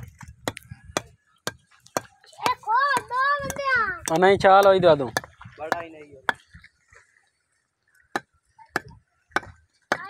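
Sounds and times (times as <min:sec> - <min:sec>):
child's voice: 0:02.4 - 0:04.1.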